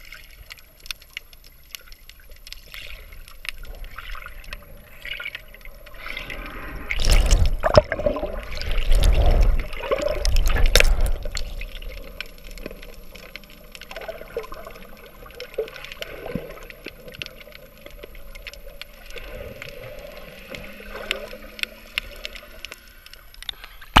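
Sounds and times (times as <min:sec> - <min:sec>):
small clicks and crackles: 0:00.0 - 0:24.0
underwater surging and gurgling: 0:00.0 - 0:24.0.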